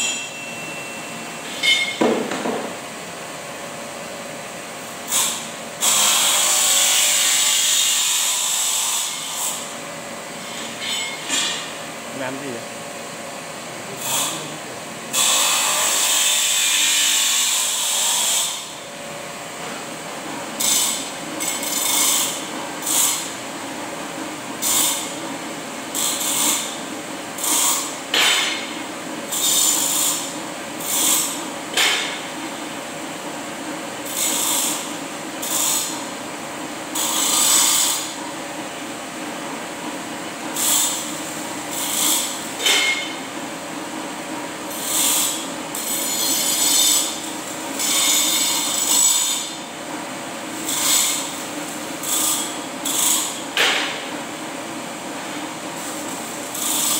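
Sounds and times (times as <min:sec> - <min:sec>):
steady motor hum: 0:00.0 - 0:56.9
tool scraping on steel: 0:10.4 - 0:11.7, 0:41.7 - 0:43.2.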